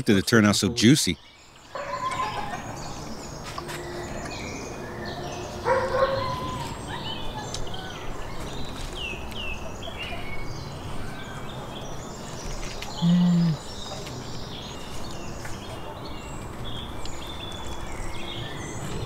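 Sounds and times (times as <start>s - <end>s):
birds chirping: 0.0s - 19.0s
short animal call: 13.0s - 13.6s.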